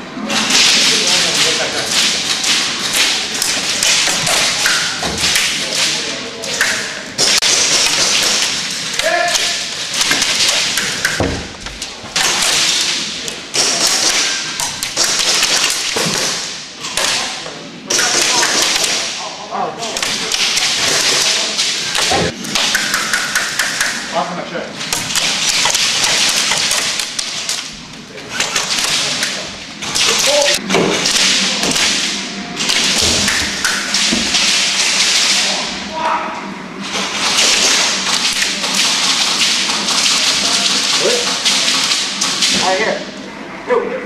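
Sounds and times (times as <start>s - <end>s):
pellets hitting plywood walls: 0.5s - 17.3s, 19.8s - 24.0s, 24.9s - 27.6s, 32.6s - 35.6s
airsoft guns firing: 7.2s - 11.5s, 12.2s - 17.3s.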